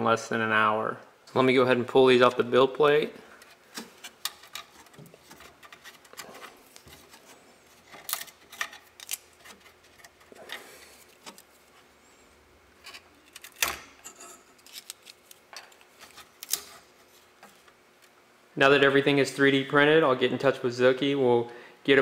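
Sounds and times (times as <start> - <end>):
plastic parts clicking and scraping: 3.4 - 11.8, 12.8 - 17.8.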